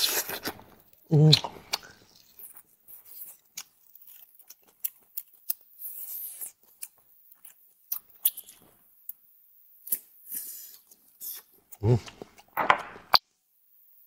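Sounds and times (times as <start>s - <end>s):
close chewing and mouth clicks: 0.0s - 9.2s.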